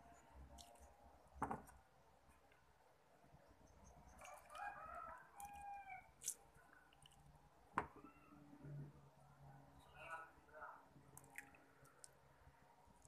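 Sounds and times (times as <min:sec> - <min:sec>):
faint rooster crowing: 0:04.2 - 0:06.2.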